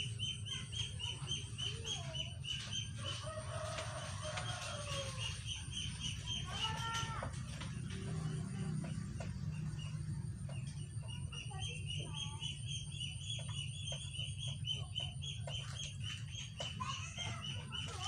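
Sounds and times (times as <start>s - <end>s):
chickens clucking: 0.0s - 18.0s
steady low hum: 0.0s - 18.0s.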